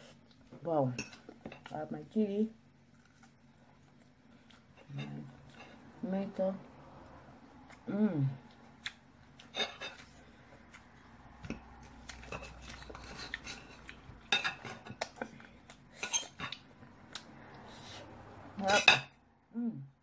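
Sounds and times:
cutlery scraping on ceramic plate: 9.5 - 10.1, 12.3 - 15.0, 16.0 - 16.6, 18.6 - 19.1.

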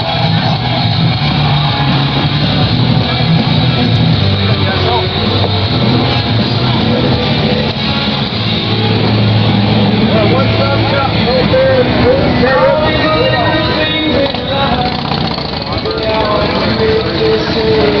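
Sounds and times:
loud rock music: 0.0 - 18.0
people talking: 2.6 - 8.4, 9.7 - 18.0.

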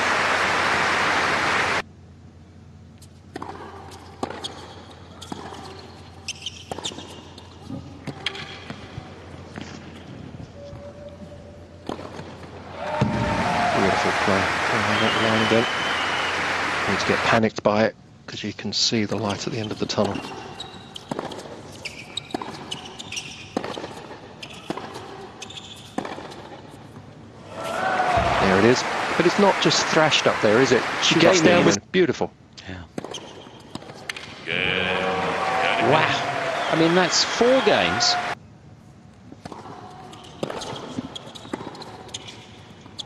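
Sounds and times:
shoe squeaks on hard court: 3.0 - 8.8, 19.2 - 26.4, 33.0 - 34.2, 40.0 - 43.0
tennis racket hitting ball: 21.0 - 22.8, 23.5 - 25.2, 25.8 - 26.6.

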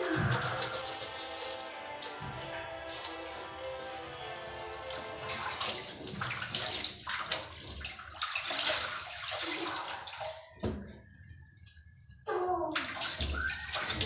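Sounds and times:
water splashing: 4.8 - 10.6, 12.8 - 14.0.

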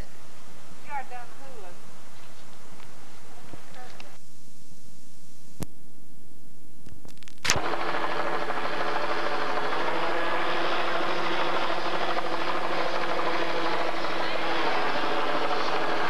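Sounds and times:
sharp clicks: 6.8 - 7.6
helicopter droning: 7.5 - 16.0.

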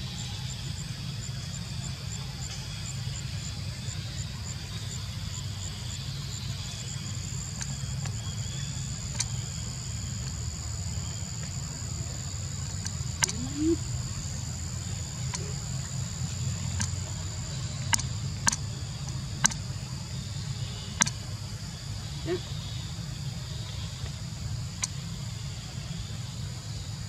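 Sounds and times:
insects droning: 0.0 - 27.0
sharp clicks: 16.6 - 17.1, 17.8 - 19.6.

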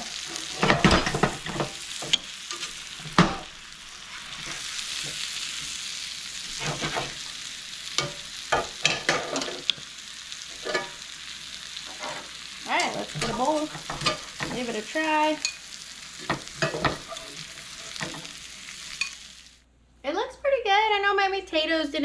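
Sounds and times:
food sizzling in a skillet: 0.0 - 19.6
utensil scraping and knocking pan: 6.6 - 7.2, 11.9 - 14.7, 16.2 - 18.3.

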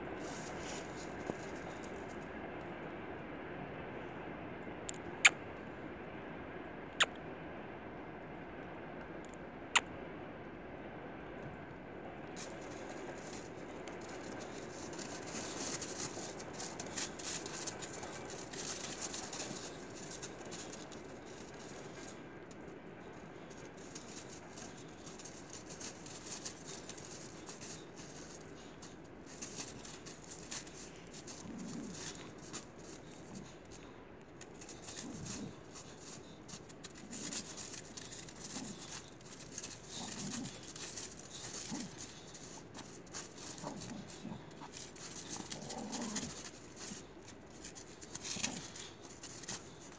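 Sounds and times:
dogs growling: 12.4 - 22.2, 23.3 - 49.9
footsteps on icy snow: 12.4 - 22.2, 23.1 - 49.9.

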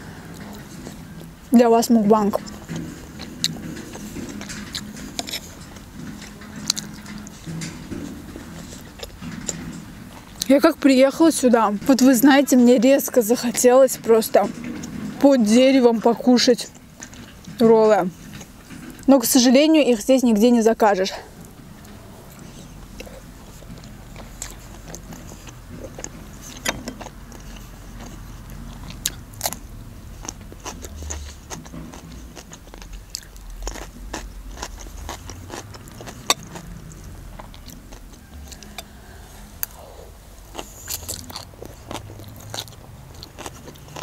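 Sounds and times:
low steady rumble: 0.0 - 44.0
person chewing and biting food: 28.8 - 44.0.

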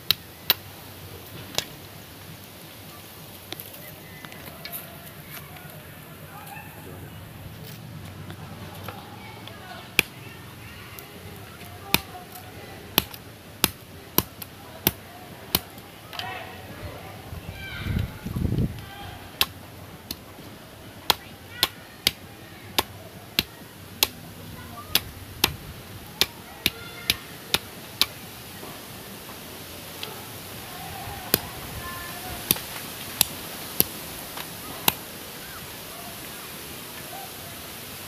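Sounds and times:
faint voices: 0.6 - 38.0
knife chopping bamboo: 10.0 - 10.2, 11.6 - 15.9, 19.3 - 20.2, 21.0 - 24.2, 24.9 - 28.2, 31.2 - 31.6, 32.4 - 35.0.

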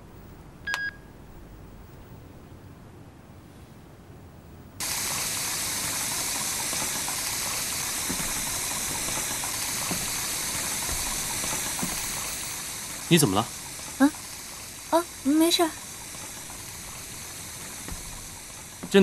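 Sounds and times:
tap water pouring into kettle: 4.8 - 19.0.

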